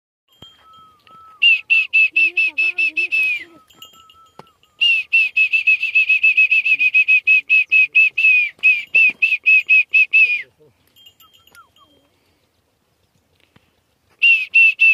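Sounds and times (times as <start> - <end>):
fast high whistled notes: 0.4 - 10.5.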